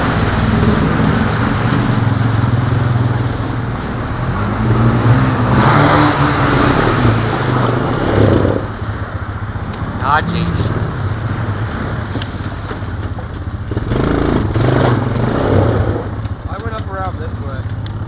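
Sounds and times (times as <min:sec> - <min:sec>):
atv engine running under load: 0:00.0 - 0:18.0.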